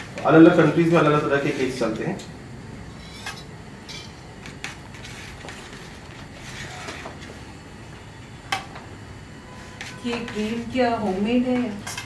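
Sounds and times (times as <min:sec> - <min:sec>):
steady low hum: 0:00.0 - 0:12.0
palette knife scraping metal bowl: 0:03.0 - 0:07.1, 0:09.5 - 0:10.8.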